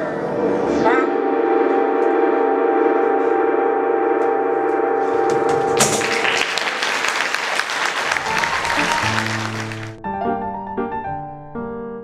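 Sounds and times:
eerie ringing drone with warble: 0:00.5 - 0:05.7
applause: 0:05.7 - 0:10.0.

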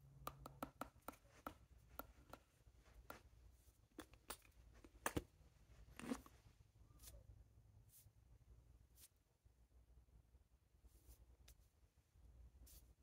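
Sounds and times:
hands tapping and brushing: 0:00.3 - 0:05.3.

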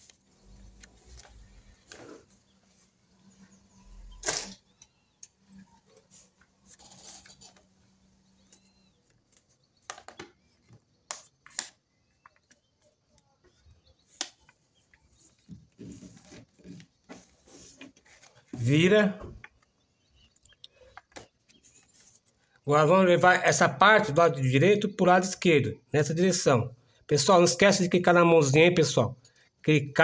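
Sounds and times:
paper rustling and clicking: 0:00.0 - 0:02.3, 0:08.5 - 0:13.2.

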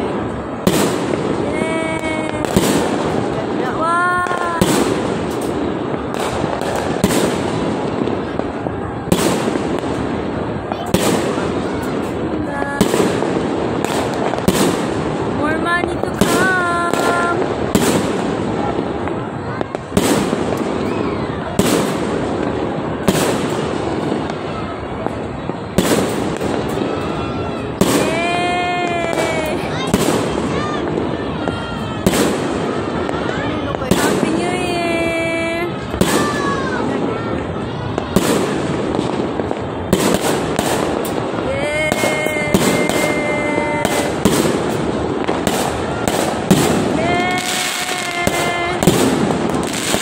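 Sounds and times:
firework shells banging: 0:00.0 - 0:24.4, 0:25.8 - 0:50.0
fireworks crackling and rumbling: 0:00.0 - 0:50.0.

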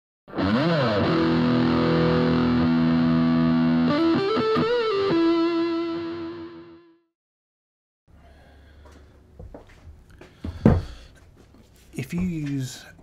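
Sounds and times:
distorted electric guitar: 0:00.3 - 0:07.0.

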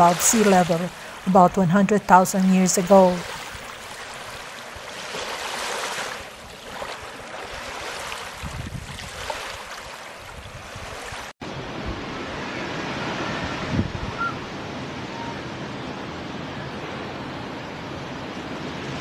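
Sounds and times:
ocean surf washing on shore: 0:00.0 - 0:19.0
wind rumble on microphone: 0:06.2 - 0:19.0.

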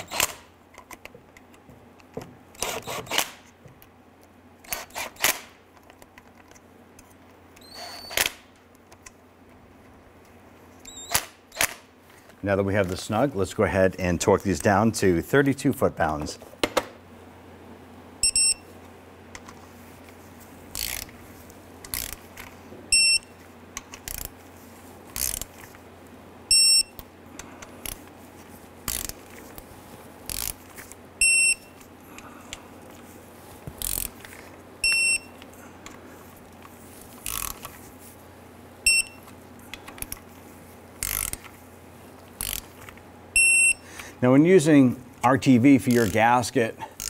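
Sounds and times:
torque wrench beeping: 0:07.6 - 0:08.3, 0:10.8 - 0:11.2, 0:18.2 - 0:18.7, 0:22.9 - 0:23.3, 0:26.5 - 0:27.0, 0:31.2 - 0:31.8, 0:34.8 - 0:35.4, 0:38.8 - 0:39.3, 0:43.3 - 0:43.9
wrench ratchet clicks: 0:20.7 - 0:21.1, 0:21.8 - 0:22.2, 0:25.2 - 0:25.5, 0:28.9 - 0:29.2, 0:30.3 - 0:30.6, 0:33.8 - 0:34.2, 0:37.2 - 0:37.7, 0:41.0 - 0:41.5, 0:42.4 - 0:42.8, 0:45.9 - 0:46.2.

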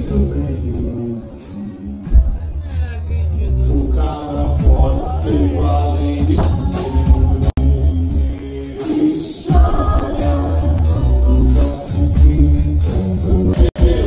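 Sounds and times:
heavy pulsing bass: 0:00.0 - 0:14.0
live band music: 0:00.0 - 0:14.0
person singing: 0:03.4 - 0:14.0.

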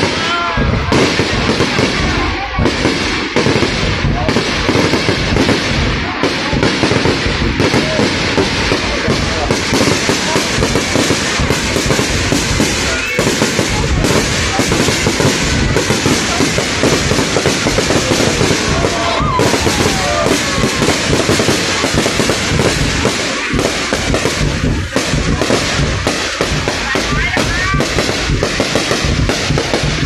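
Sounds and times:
fireworks bursting and crackling: 0:00.0 - 0:30.0.

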